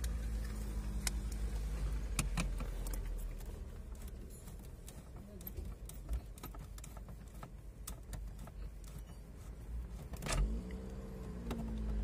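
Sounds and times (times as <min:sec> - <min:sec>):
tools clicking and tapping: 0:02.2 - 0:10.3.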